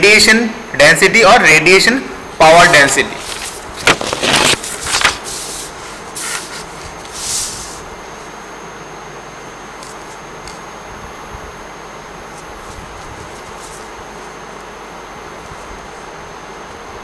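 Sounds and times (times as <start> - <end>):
paper rustling and sliding: 2.5 - 7.9, 12.3 - 13.9.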